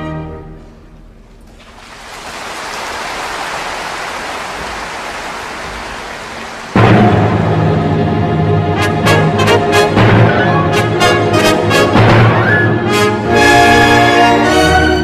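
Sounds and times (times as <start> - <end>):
orchestra playing loudly: 0.0 - 0.8, 5.3 - 15.0
audience applauding: 1.5 - 7.2.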